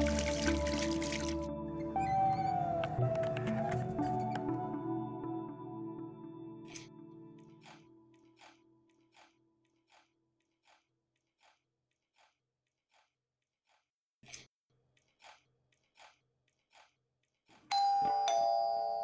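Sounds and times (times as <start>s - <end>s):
crunchy biscuit chewing: 15.0s - 17.7s.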